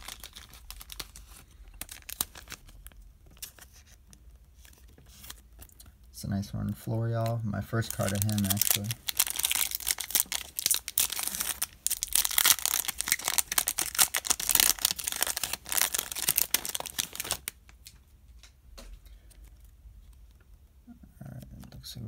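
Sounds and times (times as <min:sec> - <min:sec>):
wrapper crinkling and tearing: 0:00.0 - 0:04.0, 0:07.2 - 0:18.0.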